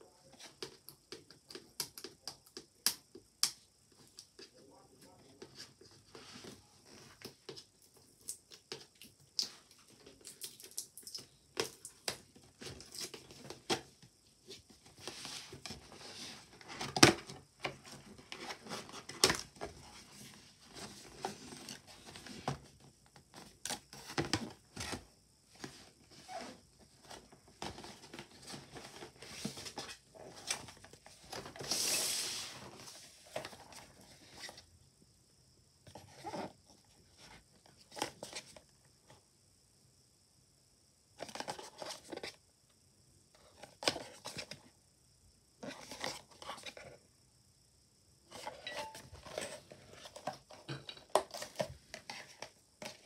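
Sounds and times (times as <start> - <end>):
box rustling scrape: 48.3 - 50.6.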